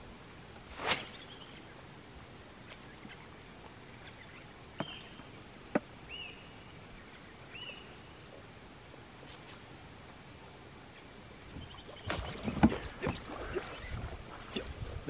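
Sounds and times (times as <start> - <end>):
faint open-air background: 0.0 - 15.0
fishing rod swishing: 0.6 - 1.4, 12.1 - 15.0.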